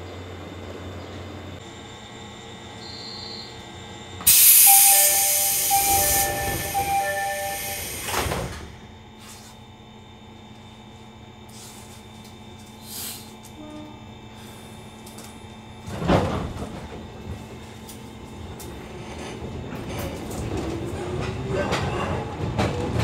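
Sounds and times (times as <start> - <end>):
low steady train hum: 0.0 - 23.0
air door engine hiss: 4.3 - 9.5, 12.8 - 13.4
two-tone door chime: 4.6 - 8.5.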